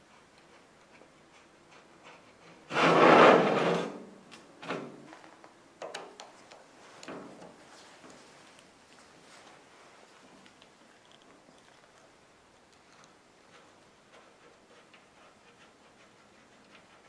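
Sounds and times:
metal jack scraping on mat: 2.6s - 4.0s.

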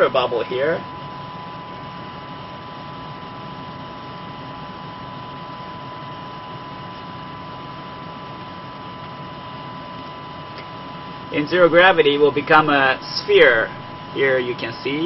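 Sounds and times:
ventilation hiss and hum: 0.0s - 15.0s.

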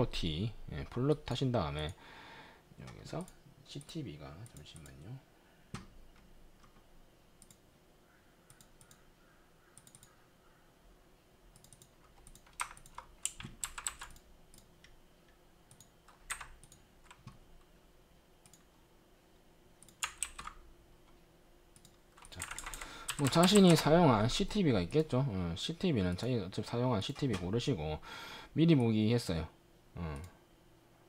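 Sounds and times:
keyboard typing: 9.8s - 10.2s, 11.6s - 14.7s, 15.7s - 17.4s, 19.8s - 20.6s, 21.8s - 24.6s, 27.1s - 27.5s.

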